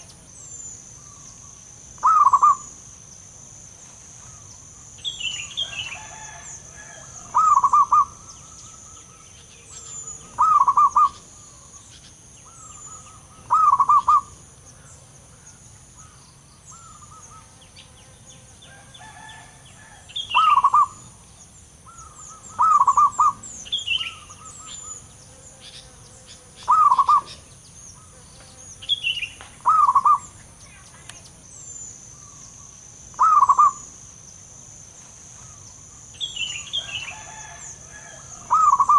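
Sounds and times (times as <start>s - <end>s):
dove cooing: 2.0s - 2.8s, 5.6s - 11.8s, 12.5s - 14.4s, 19.0s - 21.1s, 21.9s - 25.0s, 26.6s - 27.4s, 29.6s - 30.3s, 33.2s - 33.9s, 37.1s - 38.9s.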